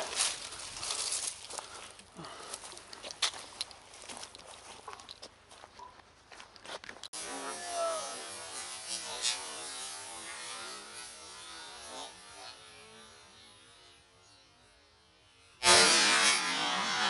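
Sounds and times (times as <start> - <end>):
rustling in dry grass: 0.0 - 7.0.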